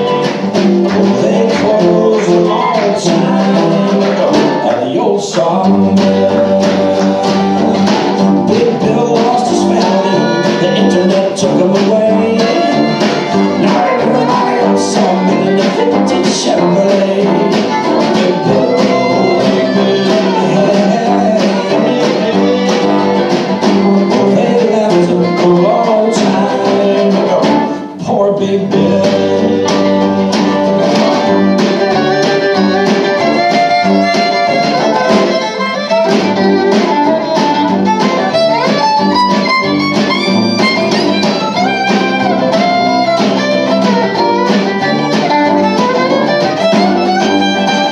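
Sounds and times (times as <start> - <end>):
snare drum: 0.0 - 27.8, 28.7 - 47.9
tuba: 0.0 - 35.4
acoustic guitar: 0.0 - 47.9
mandolin: 0.0 - 47.9
fiddle: 5.7 - 27.9, 29.0 - 47.9.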